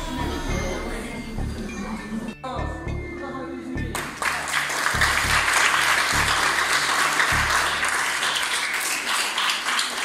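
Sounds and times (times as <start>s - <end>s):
background music with deep bass: 0.0s - 8.8s
people applauding: 3.9s - 10.0s.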